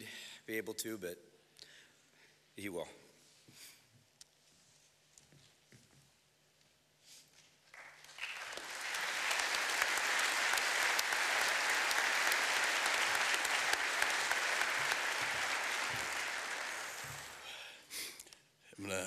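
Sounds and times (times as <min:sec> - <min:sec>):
audience applauding: 0:07.7 - 0:17.6.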